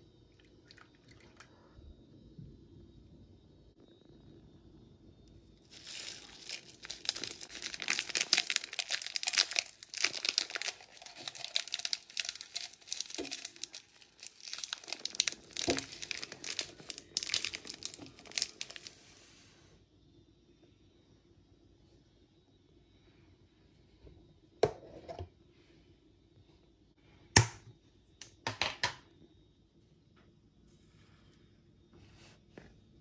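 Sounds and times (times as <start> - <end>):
plastic wrapper crinkling: 5.7 - 19.0.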